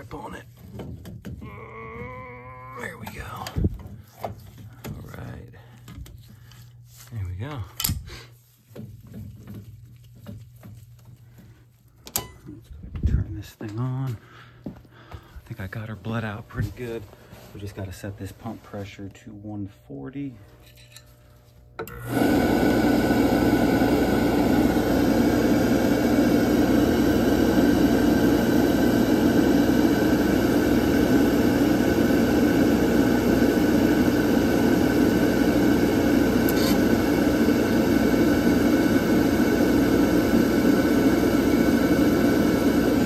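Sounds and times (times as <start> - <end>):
oil burner running: 0.0 - 19.2, 19.8 - 43.0.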